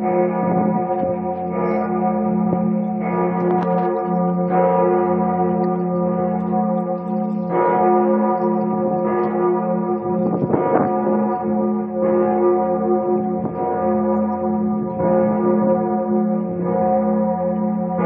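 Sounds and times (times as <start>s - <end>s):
large church bell tolling: 0.0s - 18.0s
wind rumble on microphone: 10.0s - 11.7s, 13.2s - 13.8s.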